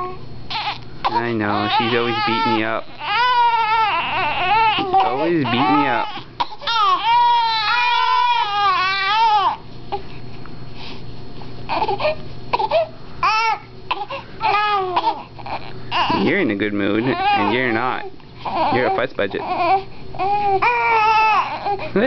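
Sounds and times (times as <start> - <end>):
infant crying: 0.0 - 10.0, 11.7 - 22.0.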